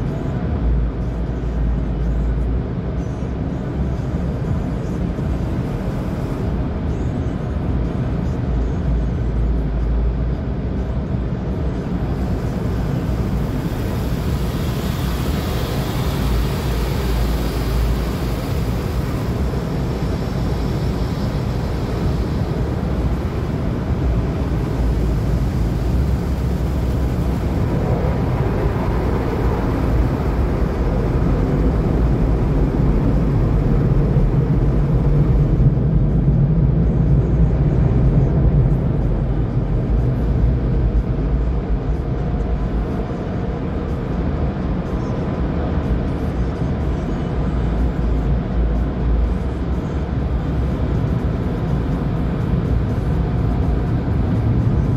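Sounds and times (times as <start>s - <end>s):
car wash water spray and machinery: 0.0s - 54.9s
dryer blowers: 12.1s - 33.7s.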